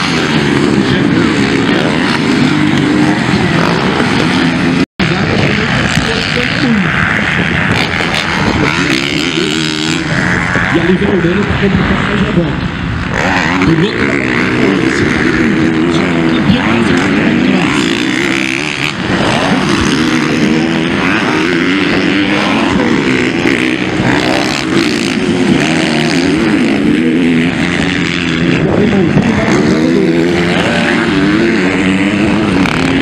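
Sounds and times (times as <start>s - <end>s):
motocross bike engines revving: 0.0s - 33.0s.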